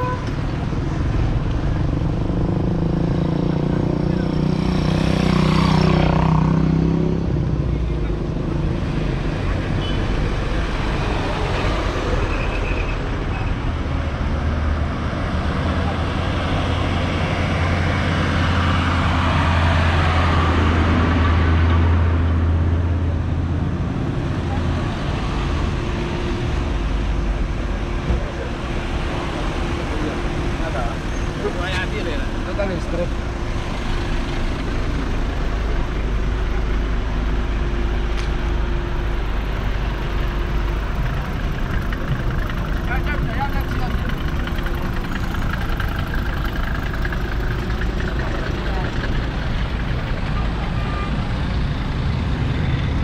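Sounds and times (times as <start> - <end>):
tyre and road noise: 0.0 - 53.0
vehicle engines humming: 0.0 - 53.0
truck passing close by: 28.8 - 53.0.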